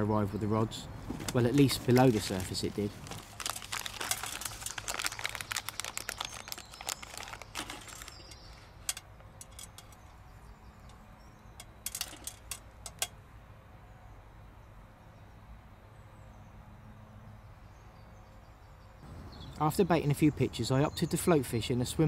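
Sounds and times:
foil packet crinkling: 0:01.3 - 0:09.0.

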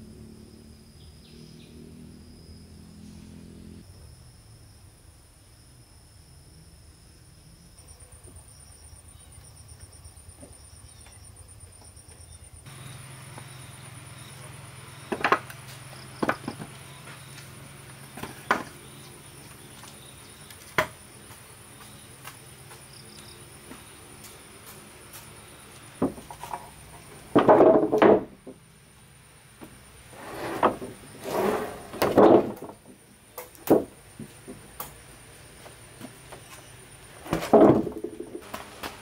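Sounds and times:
insect trill: 0:00.0 - 0:27.4
wooden bench knocking on concrete: 0:27.4 - 0:28.4.

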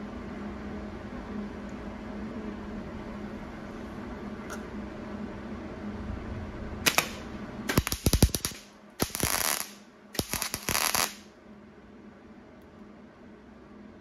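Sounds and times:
welder crackling pops: 0:06.9 - 0:11.3
welder snap: 0:06.9 - 0:11.3.

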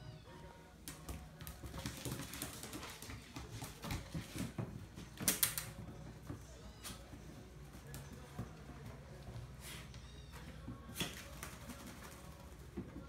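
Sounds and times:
dog claws clicking on tile floor: 0:00.8 - 0:06.0, 0:10.4 - 0:13.0.

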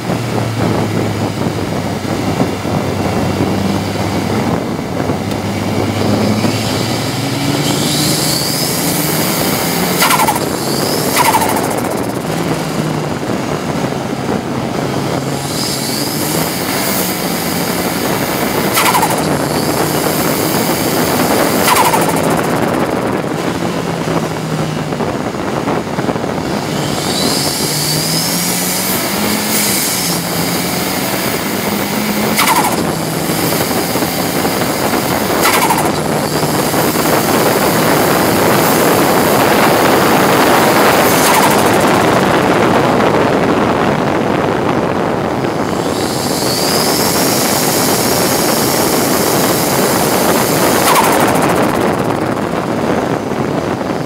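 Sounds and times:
race car engine revving: 0:00.0 - 0:54.0
sharp exhaust cracks: 0:00.0 - 0:54.0
turbo whistle: 0:07.6 - 0:12.2, 0:18.7 - 0:19.8, 0:21.6 - 0:22.7, 0:32.0 - 0:33.9, 0:35.4 - 0:37.1.

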